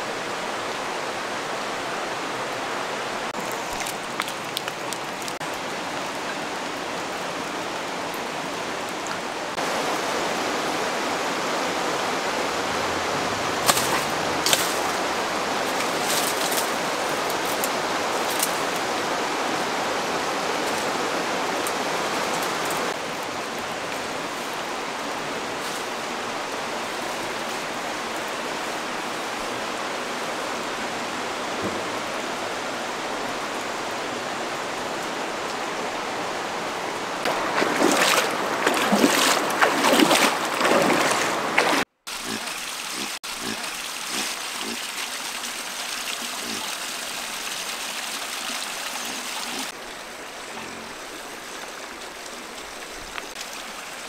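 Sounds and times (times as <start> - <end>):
stream rushing: 0.0 - 54.0
water splashing and gurgling: 3.2 - 23.0, 37.2 - 54.0.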